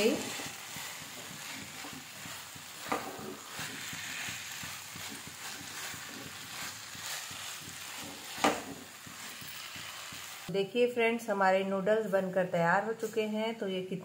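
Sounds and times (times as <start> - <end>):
faint sizzle: 0.0 - 10.5
spatula scraping a frying pan: 0.0 - 10.5.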